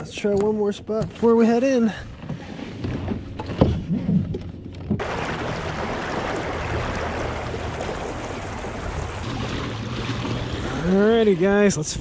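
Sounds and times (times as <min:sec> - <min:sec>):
water rushing along hull: 0:04.3 - 0:12.0.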